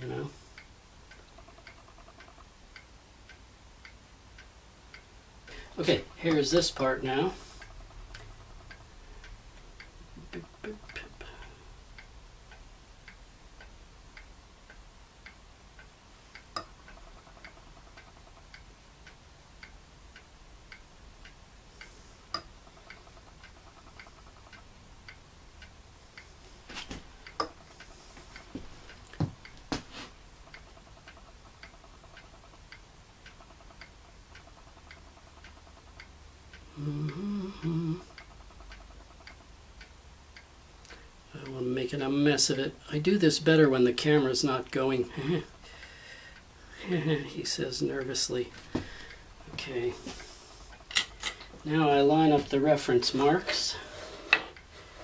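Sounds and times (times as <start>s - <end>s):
clock ticking: 0.0s - 55.0s
man humming: 36.7s - 38.2s.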